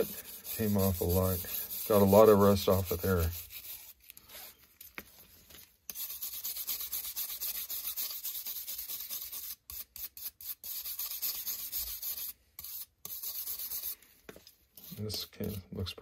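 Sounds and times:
wire brush scrubbing metal: 0.0s - 4.0s, 5.9s - 14.0s.

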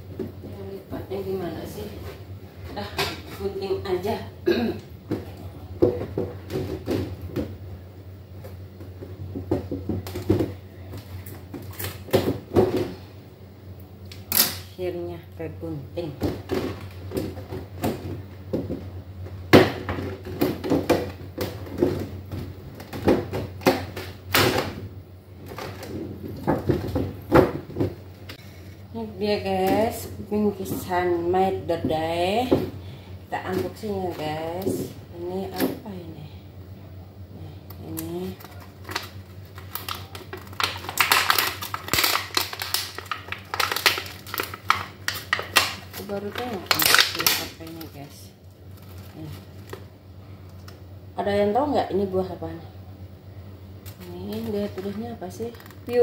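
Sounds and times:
plastic container crackling: 37.9s - 49.9s, 53.8s - 56.0s
plastic wrapping crinkling: 37.9s - 50.8s, 53.8s - 56.0s.

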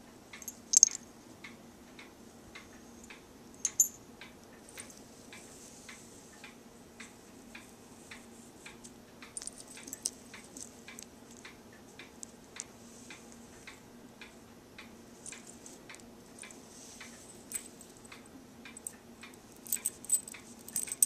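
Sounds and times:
metal charms and beads clinking: 0.4s - 1.0s, 9.4s - 10.7s, 17.3s - 18.1s, 18.8s - 21.0s.

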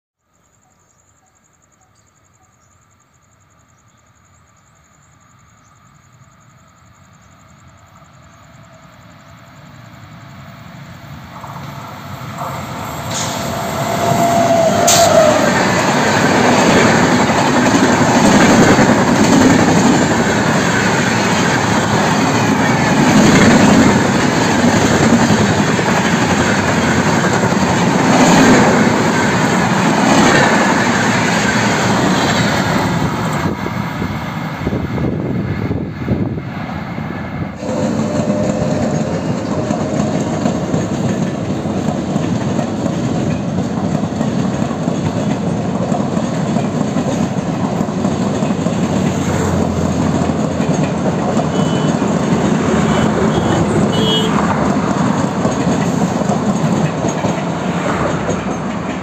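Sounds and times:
electric locomotive approaching: 3.3s - 59.0s
train wheels clattering on rails: 11.3s - 36.1s, 37.6s - 59.0s.

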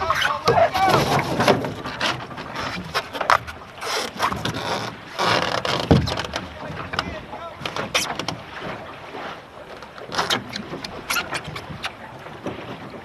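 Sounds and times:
clothing scraping on boat hull: 0.0s - 13.0s.

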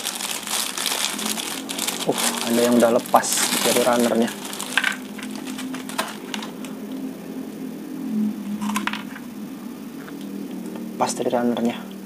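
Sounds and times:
plastic bag crinkling: 0.0s - 7.0s, 8.6s - 9.2s
plastic parts clicking: 4.7s - 6.8s, 8.6s - 9.2s.

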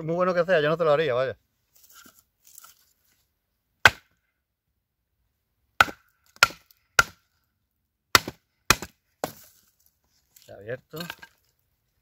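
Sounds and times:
hand axe chopping hard wood: 3.8s - 4.1s, 5.8s - 7.2s, 8.1s - 9.4s.

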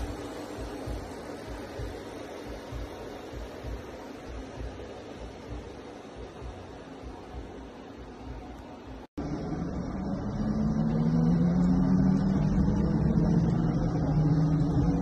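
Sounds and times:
electric car humming: 9.2s - 15.0s.

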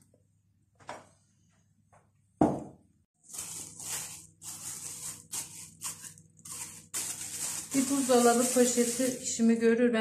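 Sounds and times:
plastic bag crinkling: 3.2s - 9.6s.

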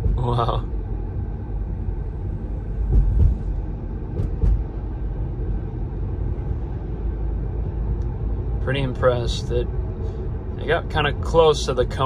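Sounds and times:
road and tyre rumble: 0.0s - 12.0s
car thumps: 2.8s - 4.8s.

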